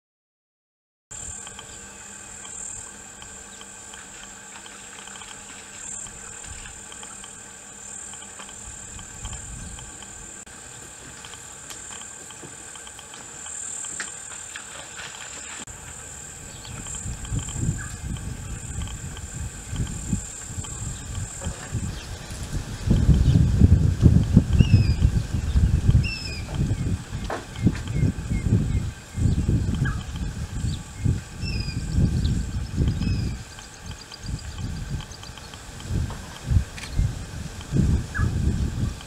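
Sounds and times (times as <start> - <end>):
high-pitched insect chorus: 1.2 - 39.0
wind rumble on microphone: 8.6 - 10.4, 15.8 - 39.0.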